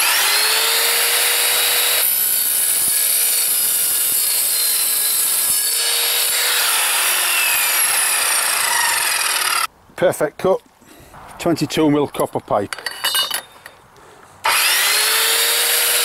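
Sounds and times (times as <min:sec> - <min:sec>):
saw cutting through metal: 0:00.0 - 0:09.7, 0:14.4 - 0:16.0.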